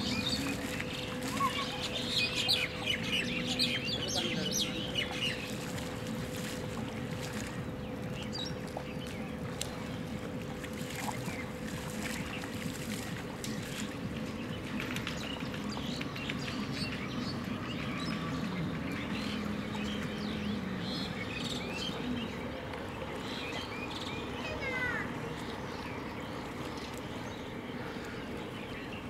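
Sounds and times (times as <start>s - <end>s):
water sloshing from wading: 0.0s - 29.0s.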